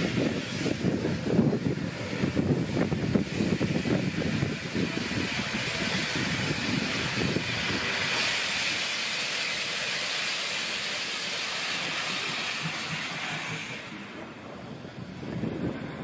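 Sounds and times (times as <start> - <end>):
steam locomotive venting steam: 0.0 - 16.0.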